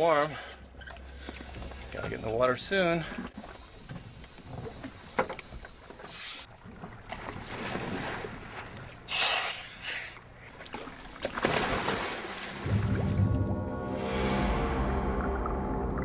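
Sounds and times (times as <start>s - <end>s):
moving water: 0.0s - 16.0s
wind: 0.0s - 16.0s
divers splashing into water: 10.7s - 13.2s.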